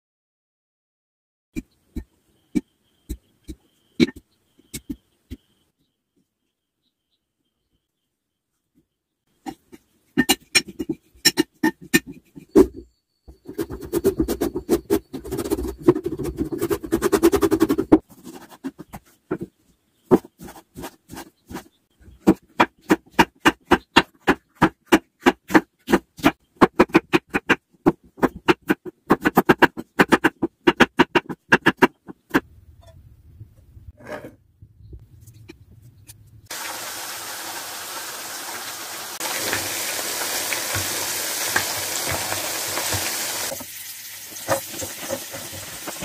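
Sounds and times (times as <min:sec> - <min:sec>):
knife chopping on wooden board: 0:22.2 - 0:32.4.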